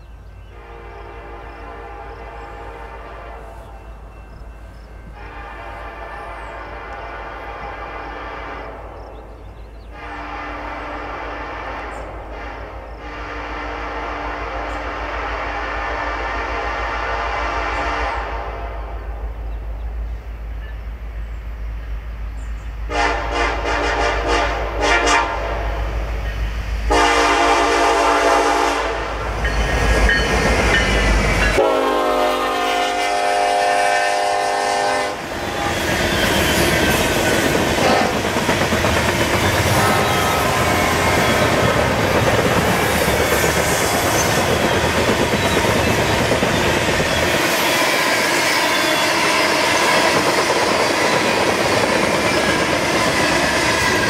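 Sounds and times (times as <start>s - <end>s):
locomotive air horn blasts: 0.5s - 4.0s, 5.0s - 9.0s, 9.9s - 19.2s, 22.9s - 26.0s, 26.9s - 29.3s, 31.4s - 37.0s, 37.7s - 38.2s, 39.6s - 41.7s
train wheels clattering on rails: 29.2s - 32.6s, 35.2s - 54.0s.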